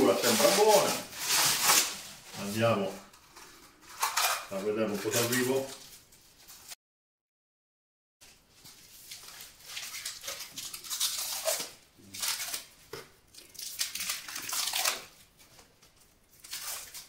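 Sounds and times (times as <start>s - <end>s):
plastic wrap tearing and crinkling: 0.0s - 3.2s, 3.8s - 6.1s, 8.9s - 17.0s.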